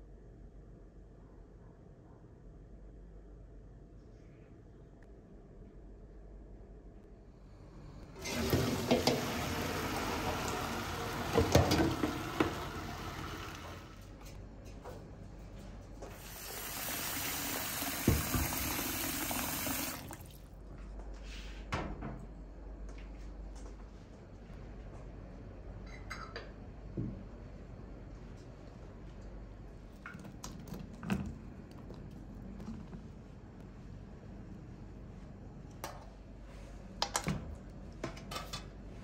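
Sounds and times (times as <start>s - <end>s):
tap water running into bowl: 8.2s - 14.1s, 16.2s - 20.4s
bowl knocking on sink: 18.0s - 18.7s.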